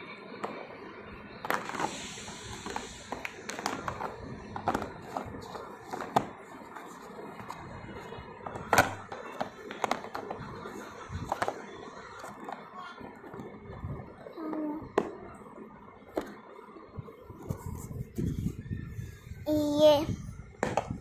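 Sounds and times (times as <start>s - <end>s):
pencil box clicks and knocks: 2.6s - 7.6s.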